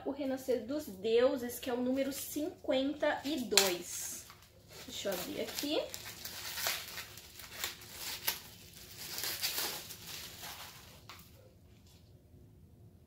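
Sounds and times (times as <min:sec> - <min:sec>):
plastic wrapping crinkling: 0:01.9 - 0:12.0.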